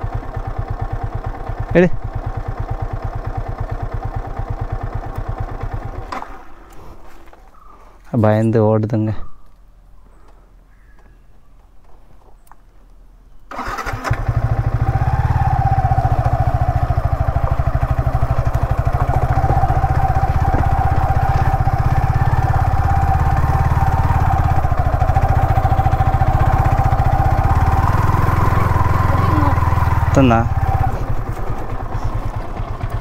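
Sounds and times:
motorcycle engine running steadily: 0.0s - 6.8s, 13.6s - 33.0s.

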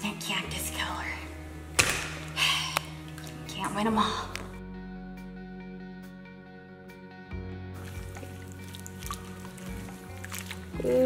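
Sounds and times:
background music with held notes: 0.0s - 11.0s
wet squishing slime: 7.8s - 11.0s.

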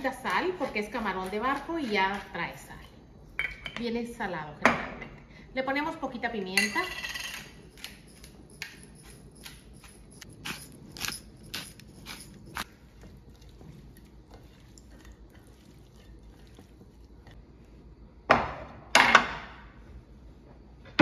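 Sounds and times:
pepper mill grinding: 7.3s - 17.1s.

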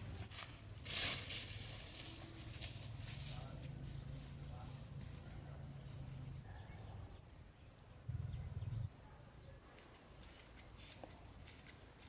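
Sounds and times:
insects buzzing: 0.0s - 12.0s
faint bird chirps: 3.4s - 9.7s.

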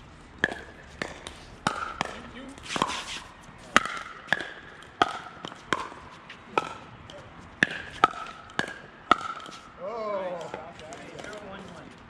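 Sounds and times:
paddles hitting plastic ball: 0.4s - 3.1s, 3.7s - 9.7s.

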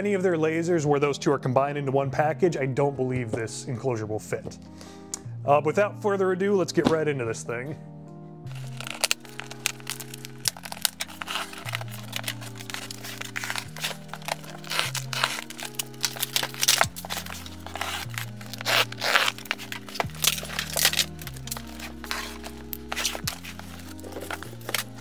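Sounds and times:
background music of sustained chords: 0.0s - 25.0s
packing tape tearing: 8.5s - 25.0s
plastic strapping crinkling: 8.5s - 25.0s.

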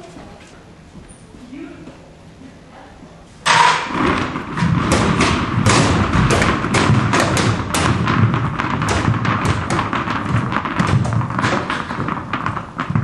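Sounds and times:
tennis balls bouncing down stairs: 3.5s - 13.0s.

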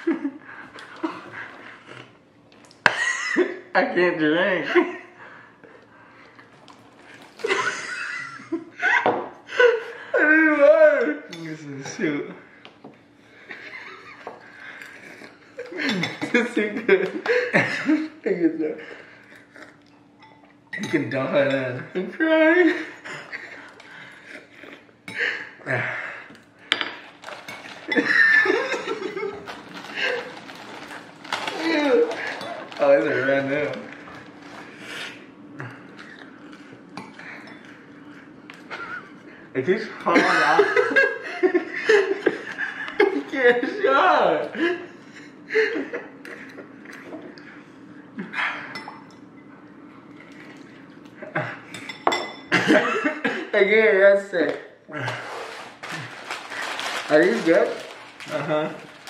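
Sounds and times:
glass and tableware clinking: 20.2s - 21.6s, 48.7s - 49.5s, 51.7s - 52.6s.

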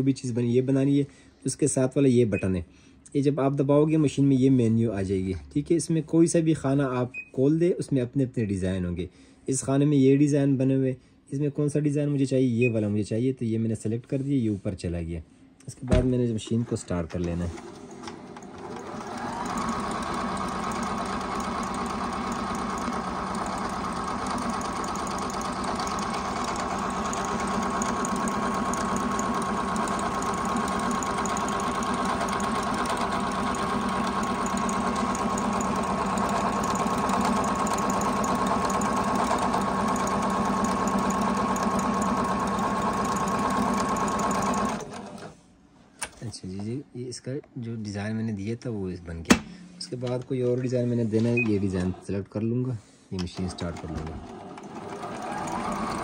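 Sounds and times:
sewing machine motor whine: 17.4s - 45.3s, 53.4s - 56.0s.

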